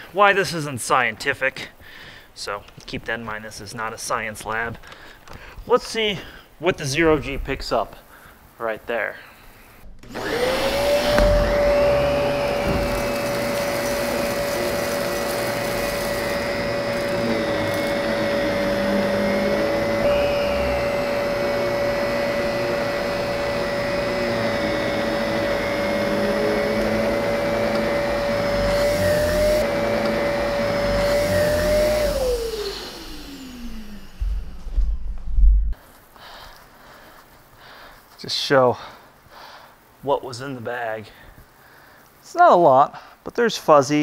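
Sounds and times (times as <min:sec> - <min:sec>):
vacuum cleaner winding down: 0:09.9 - 0:35.2
vacuum cleaner motor whine: 0:10.0 - 0:35.2.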